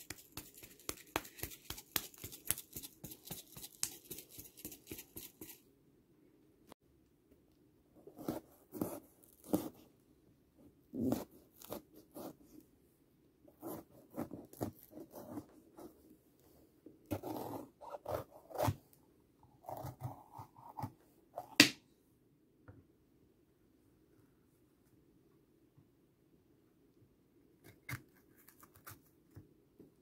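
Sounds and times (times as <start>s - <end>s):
knife cutting bell pepper: 17.1s - 18.9s, 19.6s - 21.8s.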